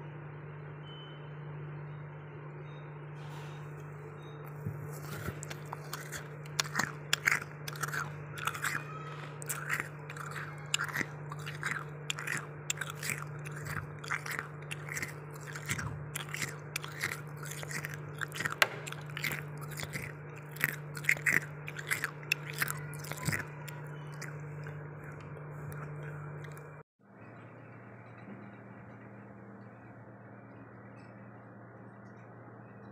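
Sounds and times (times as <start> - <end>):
steady low hum: 0.0 - 32.9
freezer frost crunching: 4.6 - 26.8.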